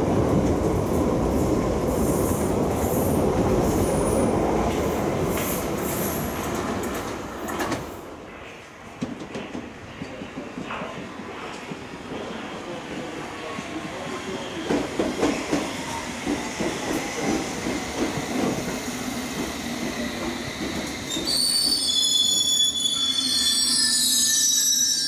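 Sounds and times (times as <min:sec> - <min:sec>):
high-pitched wheel squeal: 0:21.1 - 0:25.0.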